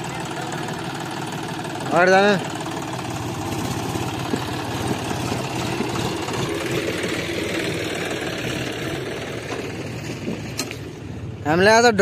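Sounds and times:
tractor diesel engine running: 0.0s - 11.8s.

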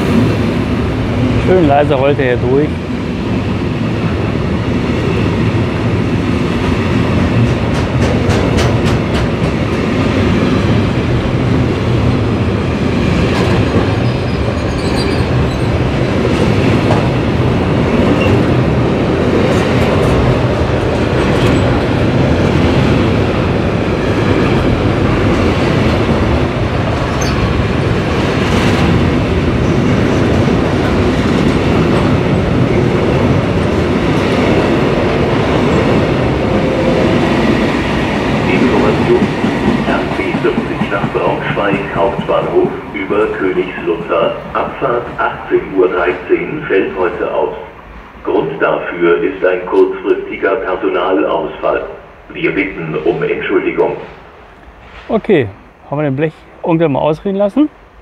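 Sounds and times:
train wheels rumbling: 0.0s - 58.0s
high wheel squeals: 14.0s - 15.8s.

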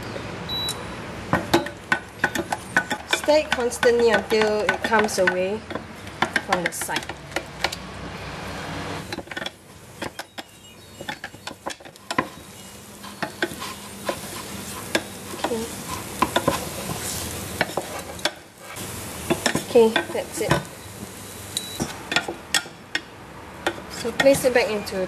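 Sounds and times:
dough sizzling: 1.2s - 25.0s
wooden spoon scraping a saucepan: 11.0s - 18.8s.

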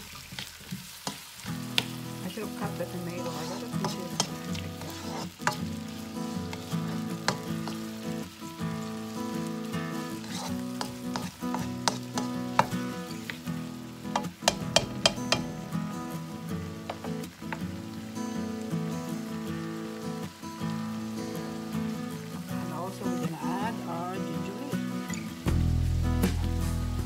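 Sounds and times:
vegetables sizzling in a wok: 0.0s - 27.0s
spatula knocking on pan: 10.3s - 12.8s, 14.2s - 15.8s, 16.9s - 17.2s.

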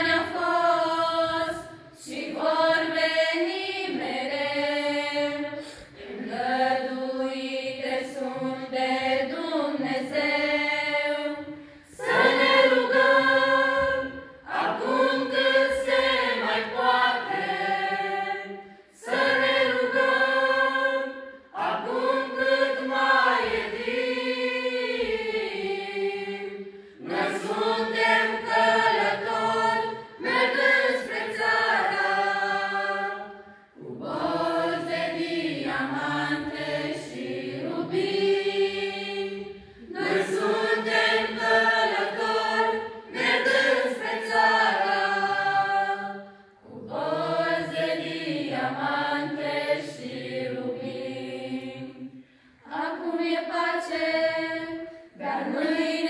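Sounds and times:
choir singing a cappella: 0.0s - 56.0s.

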